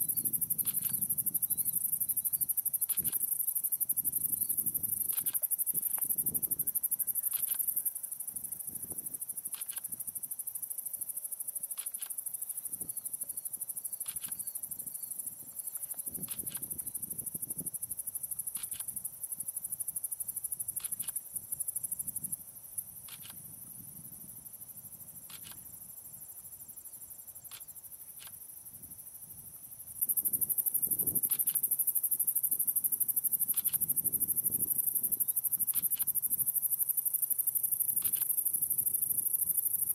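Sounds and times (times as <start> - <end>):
short separate insect chirps: 0.0 - 8.0, 9.5 - 10.0, 11.7 - 13.0, 13.9 - 17.2, 18.4 - 19.0, 23.0 - 23.6, 25.3 - 25.8, 30.1 - 32.0, 33.4 - 34.5, 35.1 - 36.7, 37.9 - 39.6
insects chirping in a trill: 0.0 - 39.9.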